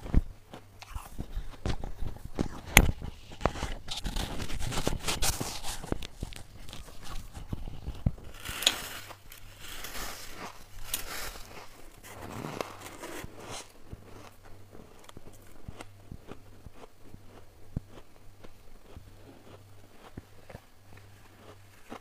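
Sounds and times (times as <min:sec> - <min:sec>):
frost crunching as it is chewed: 0:00.0 - 0:22.0.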